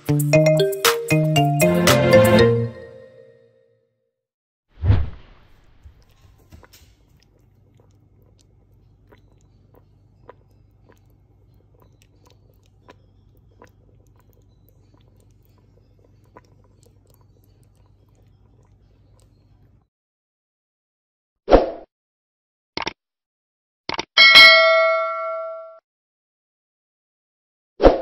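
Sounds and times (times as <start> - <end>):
low steady hum: 5.8 - 19.9
simmering pot popping: 6.0 - 18.9.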